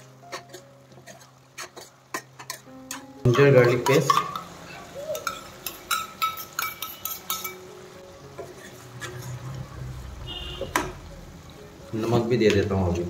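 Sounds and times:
spoon clinking on metal pan: 0.3 - 7.7.

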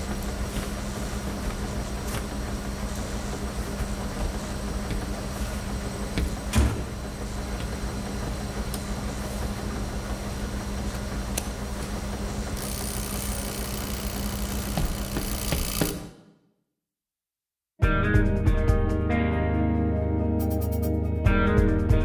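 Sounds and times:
laundromat machines humming: 0.0 - 16.4.

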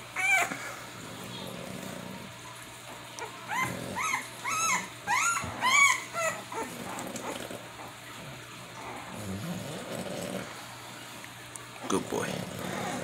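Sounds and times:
puppy whimpering: 0.0 - 1.9, 2.9 - 10.4, 12.1 - 13.0.

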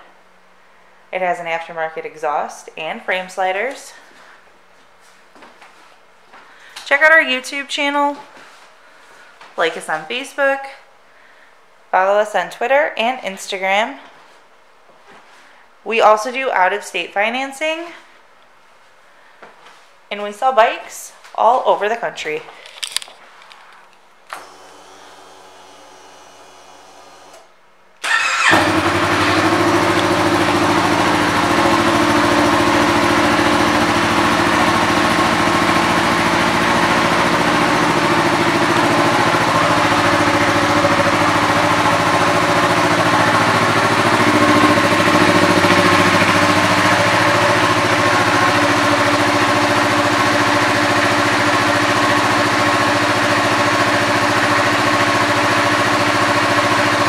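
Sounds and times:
motorcycle engine starting and idling: 24.3 - 57.0.

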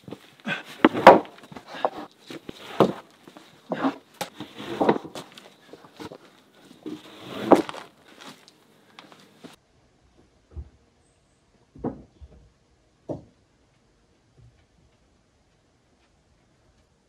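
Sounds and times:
footsteps: 0.0 - 9.6
wooden planks knocking: 0.8 - 3.1.

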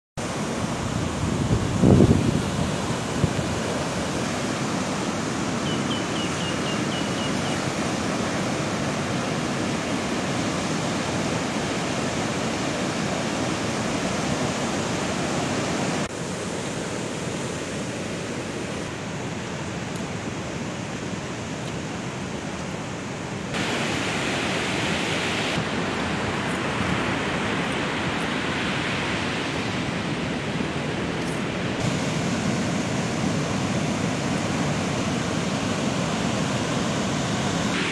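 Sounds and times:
wind: 0.2 - 37.9
surf breaking on beach: 23.5 - 37.9.

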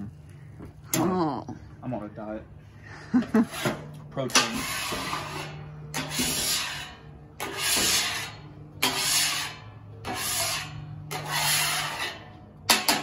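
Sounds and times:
scraper rasping on steel griddle: 3.4 - 13.0.

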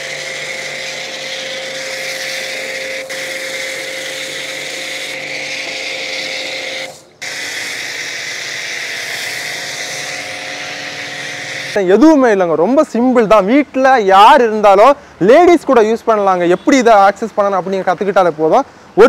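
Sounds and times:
pressure washer motor hum: 0.0 - 11.8
water jet hissing: 0.0 - 11.8.

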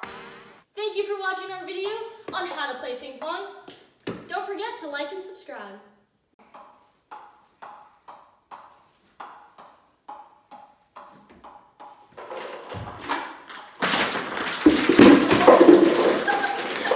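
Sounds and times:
ping pong ball bouncing on paddle: 6.4 - 12.1
ping pong balls clattering on floor: 6.4 - 16.9.

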